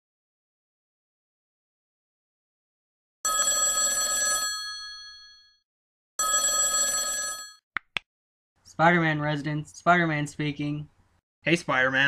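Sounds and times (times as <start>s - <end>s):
telephone bell ringing: 3.2s - 5.6s, 6.2s - 7.6s.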